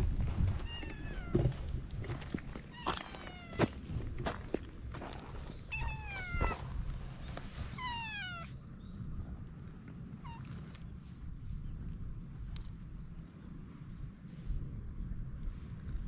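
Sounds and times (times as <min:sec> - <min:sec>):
cat meowing: 0:00.6 - 0:01.5, 0:02.7 - 0:03.7, 0:05.7 - 0:06.6, 0:07.7 - 0:08.6.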